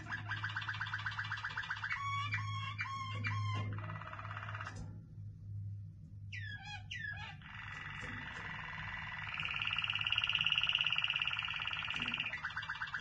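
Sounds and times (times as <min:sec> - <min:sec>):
canary singing: 0:00.0 - 0:04.7, 0:06.3 - 0:13.0
steady low hum: 0:03.4 - 0:12.5.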